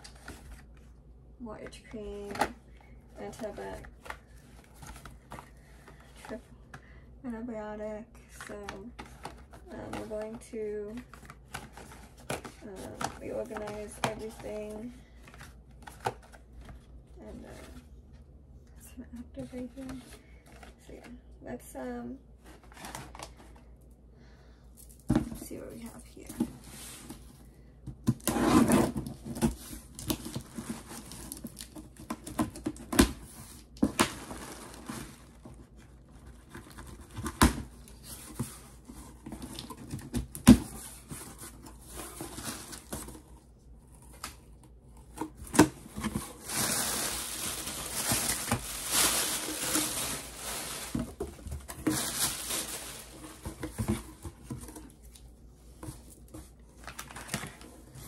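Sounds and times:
cardboard and packing material rustling: 3.2s - 6.5s, 8.4s - 17.9s, 22.4s - 23.6s, 28.0s - 58.0s.

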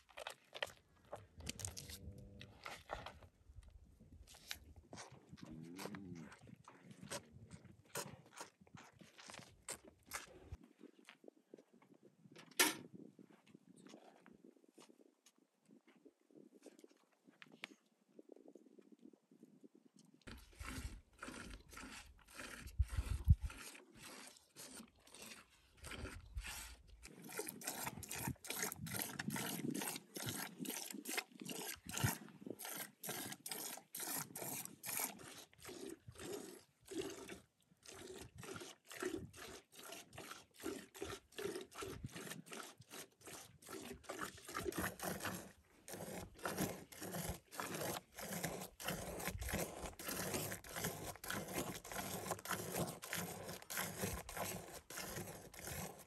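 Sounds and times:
milk squirting into metal bucket: 20.3s - 56.0s.

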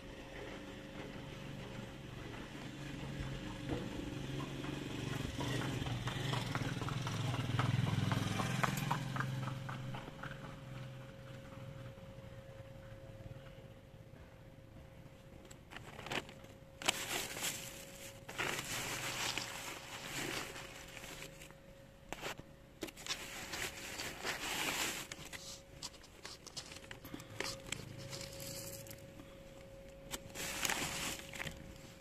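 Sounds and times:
plastic packaging crinkling: 15.7s - 29.1s, 30.0s - 31.9s.

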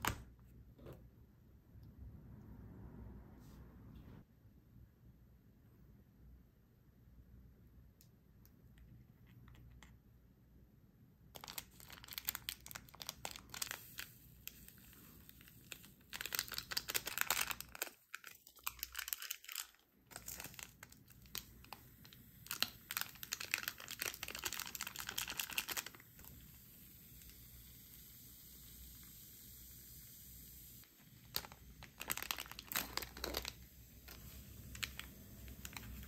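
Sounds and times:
foil sachet crinkling and tearing: 11.4s - 26.4s, 31.2s - 36.0s.

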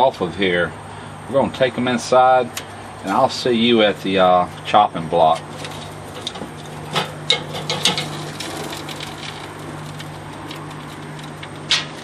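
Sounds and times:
metal tongs clinking on grate: 5.3s - 11.6s.

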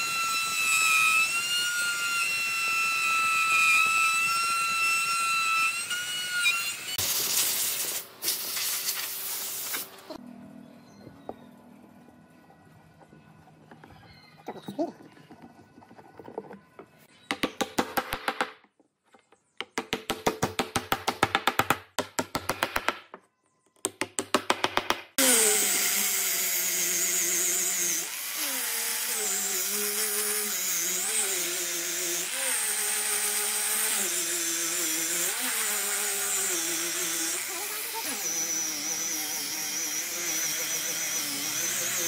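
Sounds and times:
orbital sander on wood: 25.2s - 42.0s.

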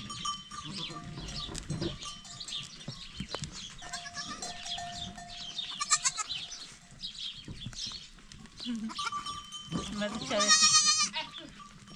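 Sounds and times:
goats bleating: 3.8s - 4.6s, 5.7s - 6.5s, 8.8s - 11.7s.

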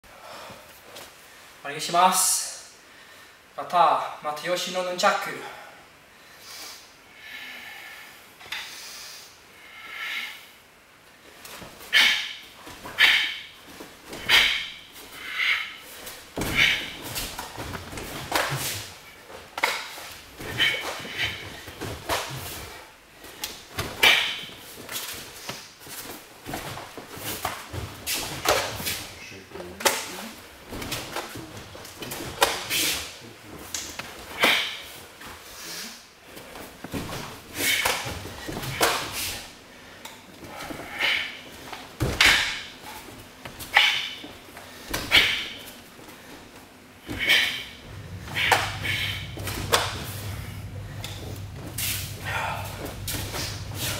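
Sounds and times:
nunchaku swishing through air: 11.4s - 29.2s, 29.8s - 35.5s, 36.4s - 39.6s, 40.5s - 46.0s, 47.0s - 53.9s.

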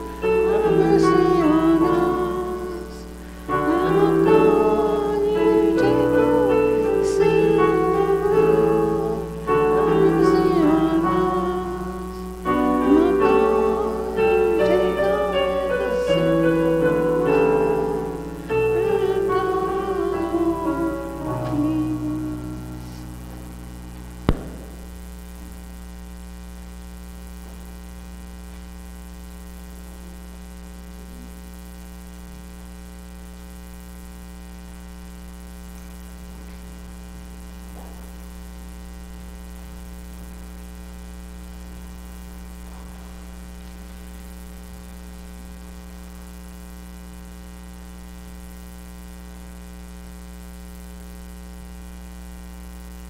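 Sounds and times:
electrical mains hum: 0.0s - 53.0s
faint hiss: 0.0s - 53.0s.

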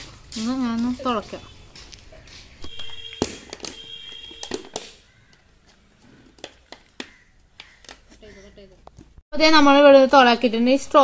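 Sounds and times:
pen tapping plastic bottle: 2.7s - 5.4s.

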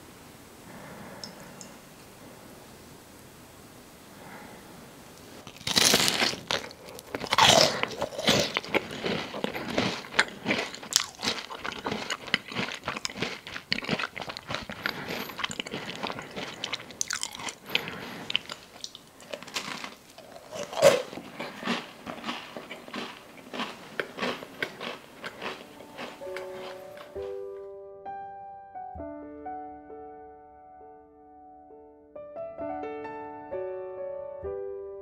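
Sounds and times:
cookie crunching and chewing: 5.4s - 27.4s.

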